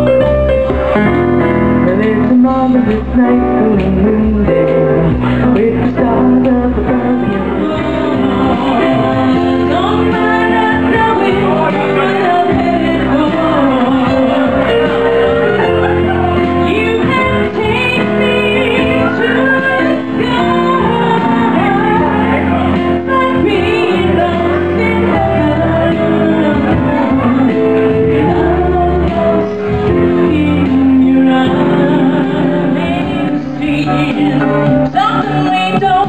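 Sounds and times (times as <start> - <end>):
keyboard chords: 0.0 - 36.0
woman singing pop ballad: 1.8 - 36.0.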